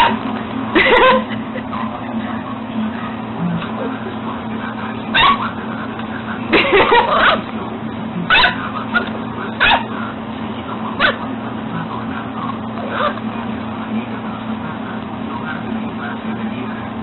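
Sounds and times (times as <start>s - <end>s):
steady low hum: 0.0s - 17.0s
puppy yipping and whimpering: 5.2s - 5.5s.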